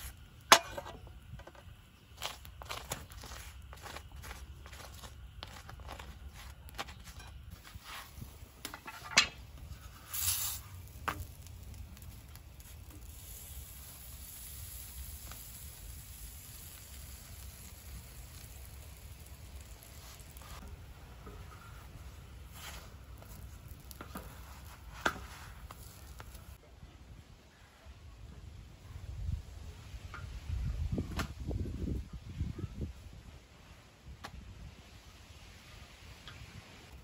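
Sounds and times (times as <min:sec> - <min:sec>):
gas burner hiss: 0:00.0 - 0:26.6
wooden spatula scraping metal: 0:02.2 - 0:11.4.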